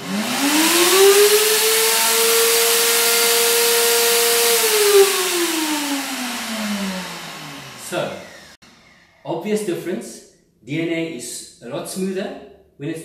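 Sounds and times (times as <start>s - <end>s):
blender motor whining: 0.0s - 9.2s.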